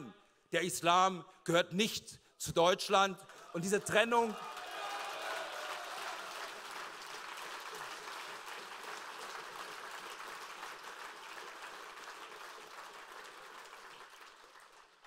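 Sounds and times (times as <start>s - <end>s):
audience applauding: 3.3s - 15.0s.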